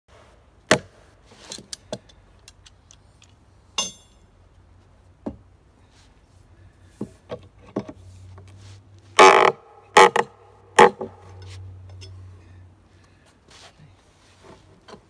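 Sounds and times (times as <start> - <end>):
metal striking metal: 3.8 - 4.2.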